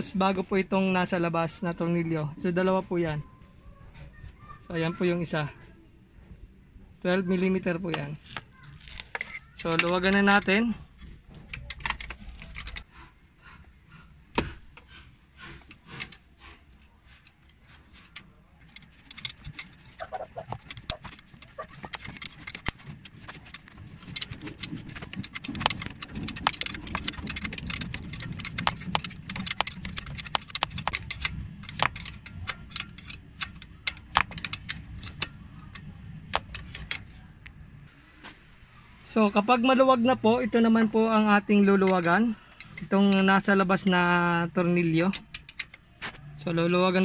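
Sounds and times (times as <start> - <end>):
hand wrench clicking and rattling: 7.9 - 12.9, 14.8 - 37.2, 41.7 - 46.8.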